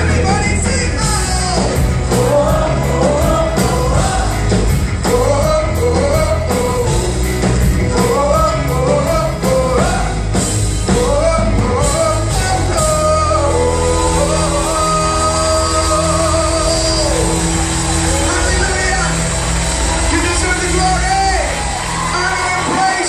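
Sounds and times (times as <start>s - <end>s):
drum beat: 0.0s - 13.3s
worship band playing: 0.0s - 23.0s
people singing: 1.6s - 17.7s.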